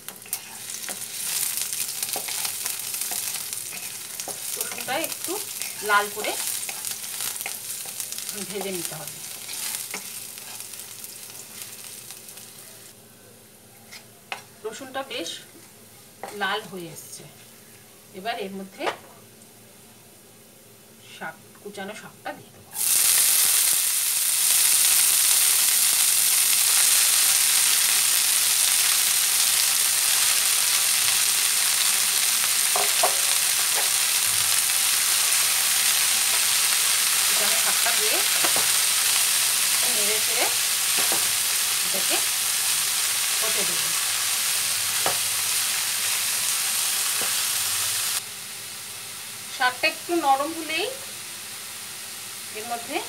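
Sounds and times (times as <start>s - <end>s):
spinach sizzling in hot oil: 0.0s - 12.9s, 22.7s - 53.0s
spatula scraping and tapping pan: 2.0s - 4.9s, 9.4s - 10.7s, 32.7s - 34.0s.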